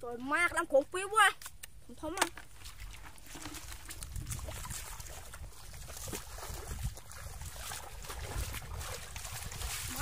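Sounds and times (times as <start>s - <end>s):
feet sloshing through water: 2.4s - 10.0s.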